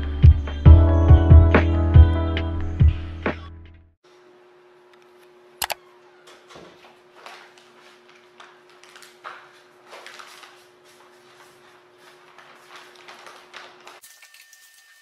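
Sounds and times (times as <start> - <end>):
plastic pouch crinkling: 7.2 - 14.9.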